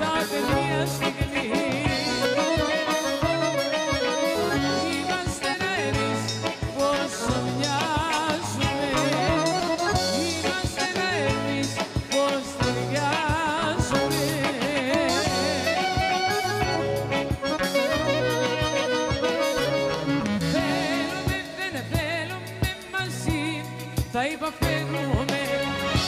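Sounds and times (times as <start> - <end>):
live folk band playing: 0.0 - 26.0
steady drum beat: 0.0 - 26.0
clarinet trills: 2.0 - 6.6, 15.1 - 21.5.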